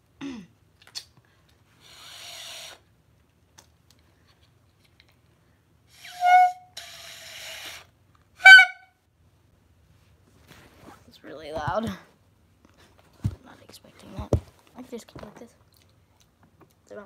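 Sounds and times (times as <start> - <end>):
loud high clarinet squawk: 6.0 - 8.9.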